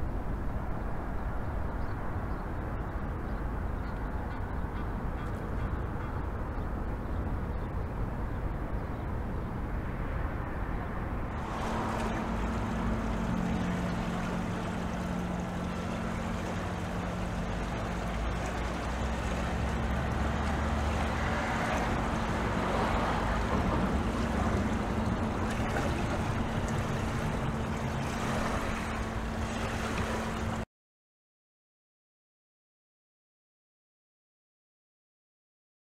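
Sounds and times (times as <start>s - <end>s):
city noise: 0.0s - 30.6s
boat engine droning: 10.5s - 30.6s
water wash: 11.3s - 30.6s.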